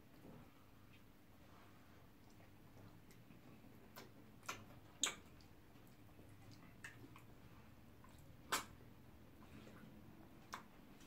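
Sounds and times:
wet mouth smacks eating: 3.9 - 7.4, 8.0 - 8.8.

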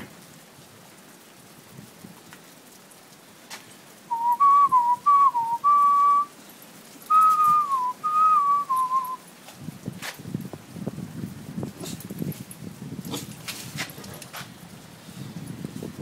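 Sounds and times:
person whistling a tune: 4.1 - 6.3, 7.1 - 9.2.

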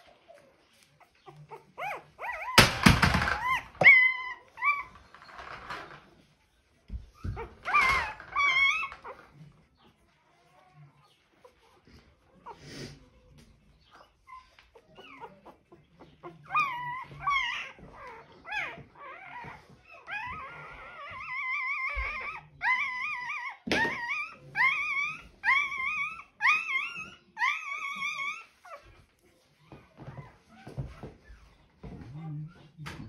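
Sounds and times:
puppy crying: 0.0 - 6.1, 7.0 - 9.4, 13.8 - 31.6.

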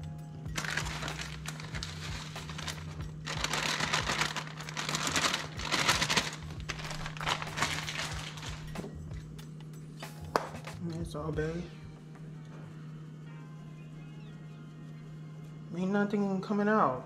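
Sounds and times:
plastic bag crinkling: 0.5 - 8.8.

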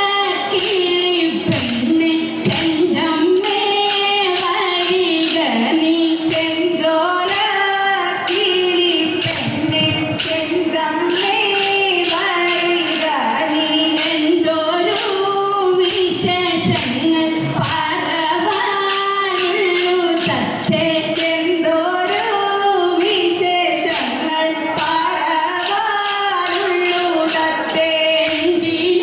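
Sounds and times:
women singing: 0.0 - 29.0.

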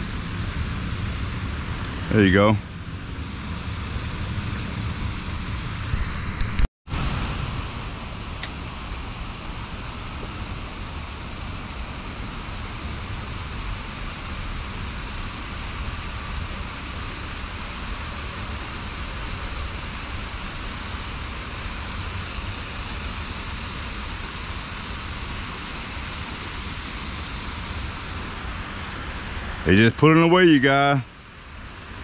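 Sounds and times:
water rushing over spillway: 6.9 - 32.0.

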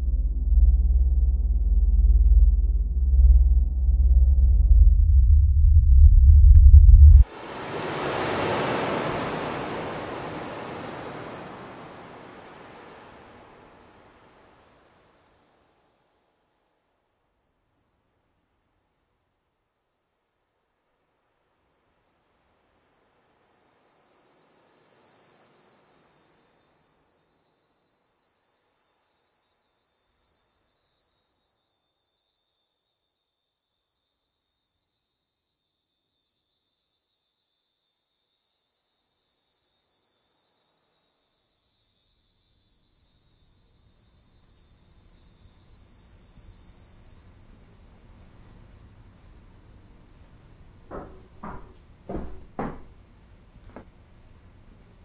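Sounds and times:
high-pitched electronic tone: 0.0 - 7.3
low room rumble: 0.0 - 7.3
sharp knocks: 50.9 - 53.0.

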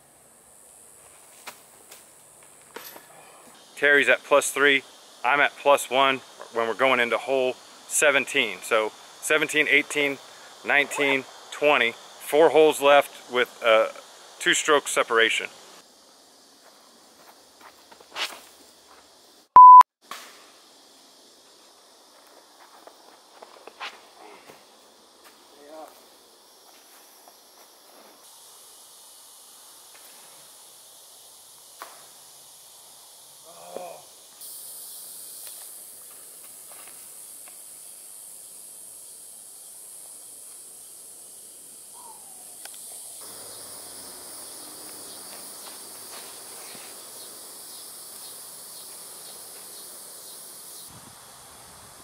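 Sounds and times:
insect chorus drone: 0.0 - 52.0
short falling chirp: 19.6 - 19.8.

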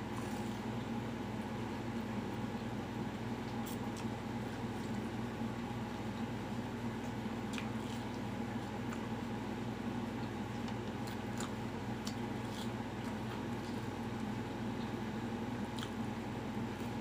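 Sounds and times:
steady low hum: 0.0 - 17.0
person chewing fried chicken: 3.4 - 5.2, 7.0 - 9.2, 10.2 - 15.0, 15.6 - 17.0.

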